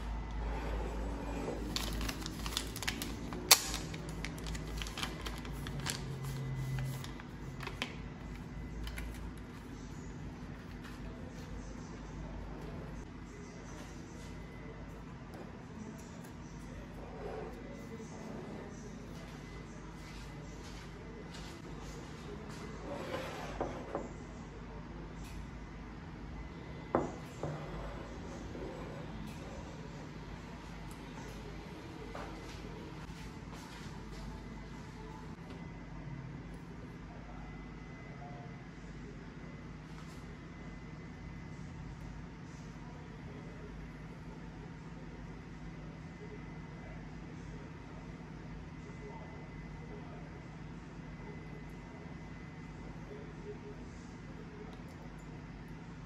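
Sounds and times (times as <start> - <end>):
foil packet crinkling: 1.7 - 7.9.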